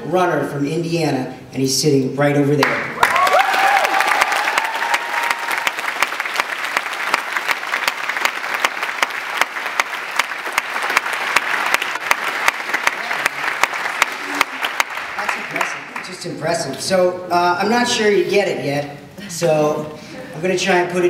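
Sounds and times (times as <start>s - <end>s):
person whooping: 3.0s - 5.8s
audience applauding: 3.0s - 16.4s.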